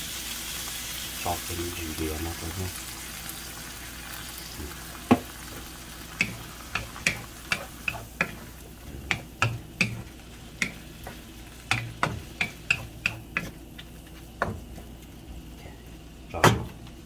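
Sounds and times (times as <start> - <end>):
meat sizzling in pan: 0.0 - 17.0
wooden spatula knocking on wok: 6.2 - 8.4, 9.1 - 13.6, 14.4 - 14.9.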